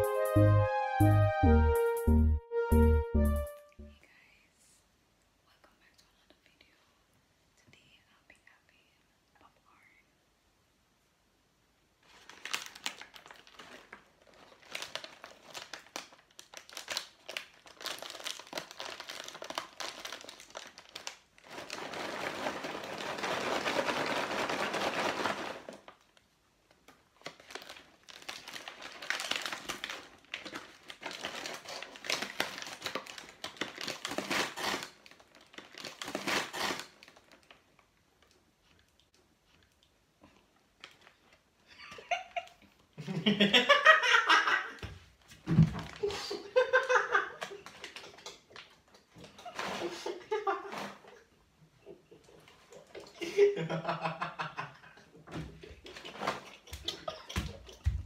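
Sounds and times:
paper bag crinkling and rustling: 12.0 - 26.2, 26.8 - 37.8, 49.2 - 51.1, 55.8 - 58.0.

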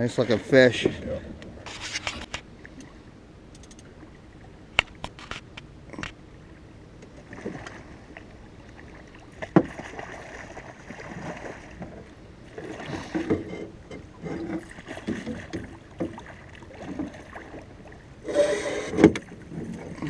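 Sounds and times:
water lapping around boat: 0.0 - 20.0
sharp knocks on boat: 9.4 - 9.9.

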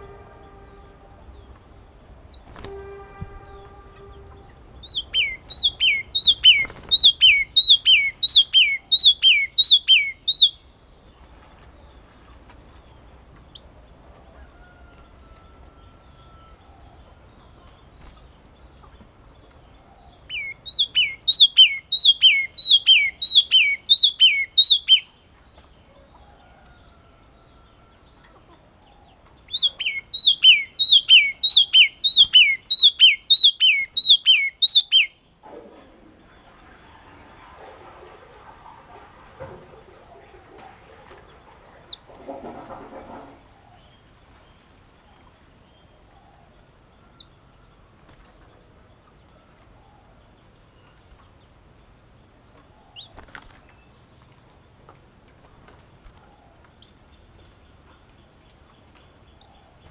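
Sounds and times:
steady horn-like tone: 0.0 - 1.5, 2.5 - 4.8.

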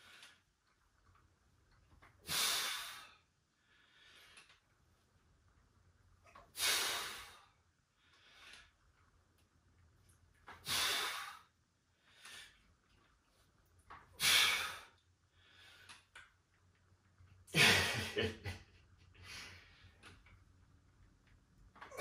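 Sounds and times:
man exhaling forcefully: 10.6 - 11.4, 14.2 - 14.9.

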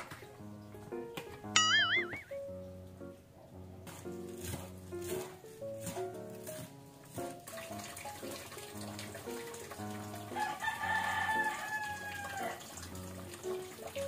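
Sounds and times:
background music: 0.0 - 14.0
rooster crowing: 10.4 - 12.7.

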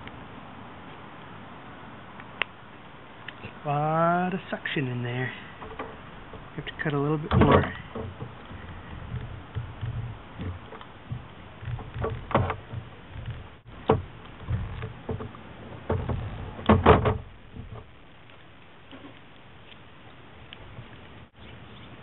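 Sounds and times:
rubber rustling and handling: 5.4 - 21.2
tool clicks and knocks: 5.6 - 17.9.

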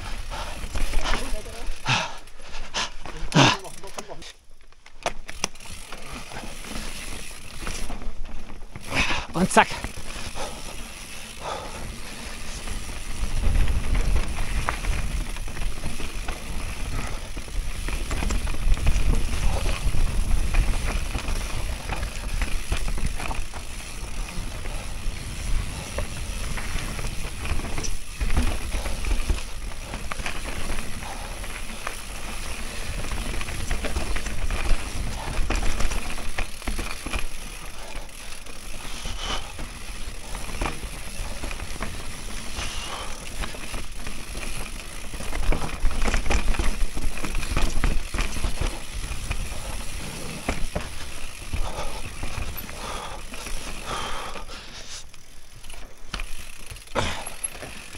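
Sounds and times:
bike rattling over bumps: 0.0 - 57.9
bike tyres rolling over dirt: 0.0 - 57.9.

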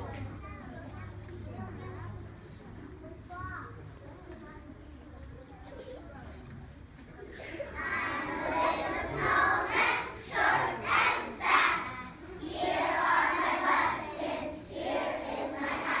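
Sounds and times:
children singing in unison: 7.8 - 16.0.

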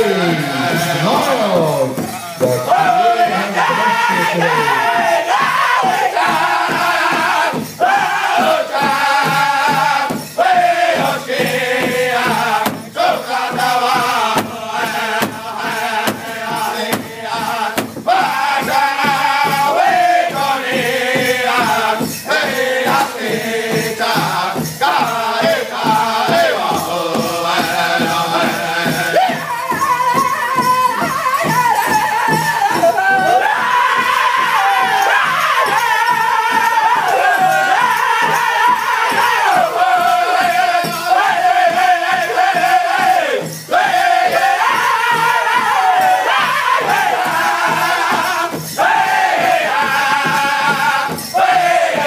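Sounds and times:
men singing in unison: 0.0 - 52.0
large hide drum beating: 0.1 - 52.0.

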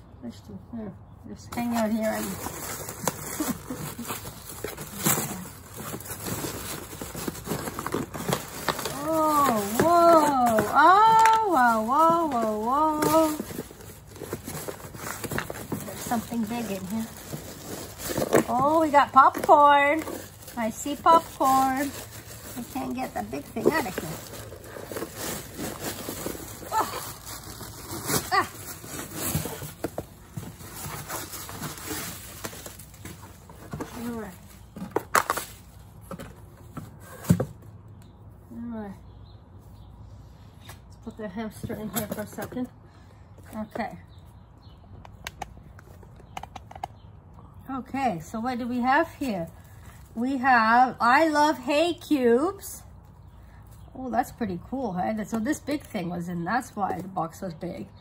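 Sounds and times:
cardboard and tissue paper rustling: 1.5 - 37.6.

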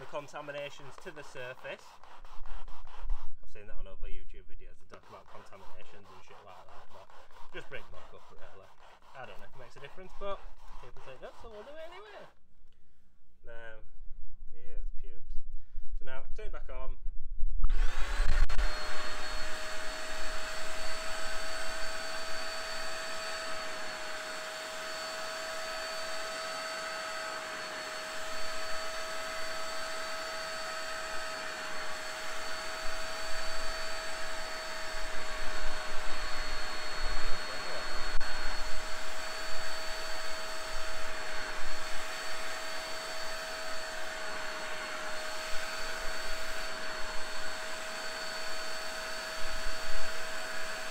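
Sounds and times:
rushing suction noise: 0.0 - 3.7, 4.9 - 12.3, 17.7 - 50.9
spot cleaner motor whine: 17.7 - 50.9.

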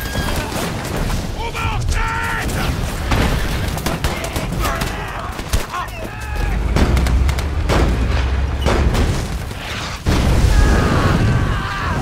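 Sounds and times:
heavy explosions: 6.3 - 12.0.

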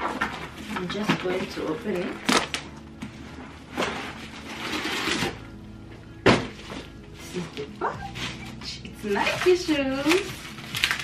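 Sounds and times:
scraping and rustling of packaging: 0.0 - 11.0.

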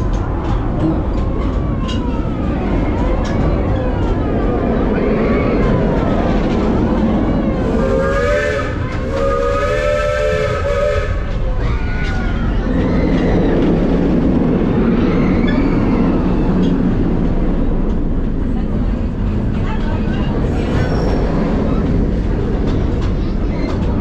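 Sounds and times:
train cars rumbling on track: 0.0 - 24.0
steam locomotive whistle: 7.6 - 11.3.

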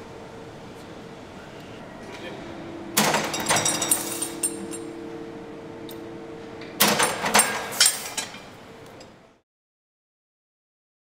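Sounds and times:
steady hum: 0.0 - 9.4
metal clanking and rattling: 3.0 - 5.0, 6.6 - 9.1.

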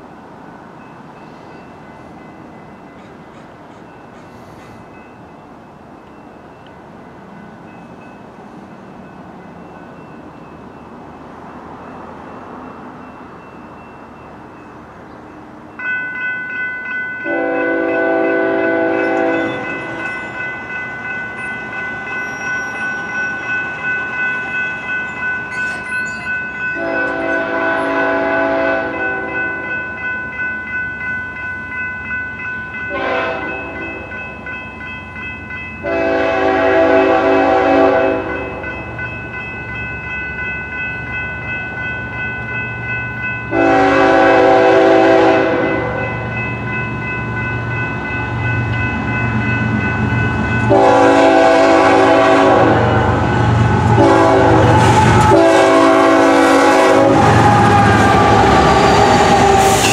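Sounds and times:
train rumble: 0.0 - 59.9
bell ringing: 11.8 - 27.5, 28.9 - 36.0, 38.3 - 43.7, 45.6 - 51.0
locomotive horn: 17.2 - 19.8, 26.8 - 29.6, 32.9 - 33.8, 35.8 - 38.6, 43.5 - 46.0, 50.7 - 59.9.

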